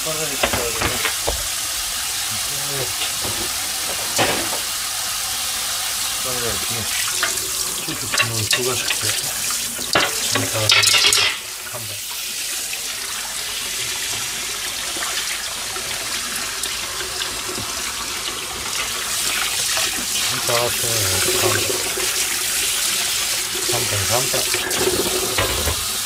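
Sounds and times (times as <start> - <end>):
tap water running into sink: 0.0 - 26.0
metal pan clattering in sink: 0.4 - 1.6, 2.9 - 4.8, 7.2 - 9.2, 9.8 - 11.5, 21.2 - 22.1, 24.5 - 26.0.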